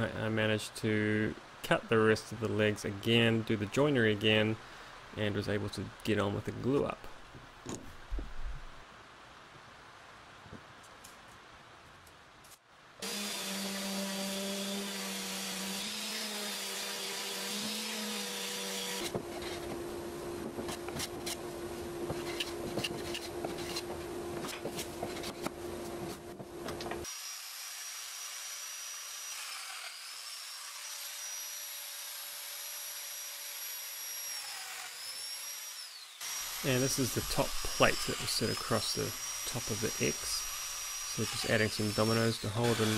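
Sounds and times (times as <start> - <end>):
power joiner whine: 13.0 - 19.1
hand plane scraping wood: 22.1 - 27.0.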